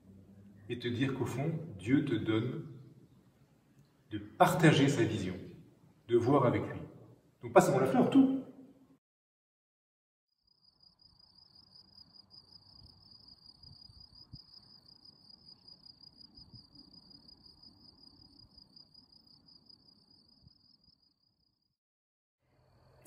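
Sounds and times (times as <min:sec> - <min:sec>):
crickets trilling: 0:10.5 - 0:21.4.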